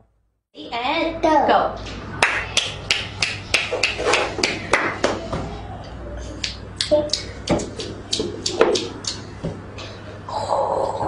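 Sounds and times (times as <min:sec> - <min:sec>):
woman clapping hands: 0:02.2 - 0:05.2.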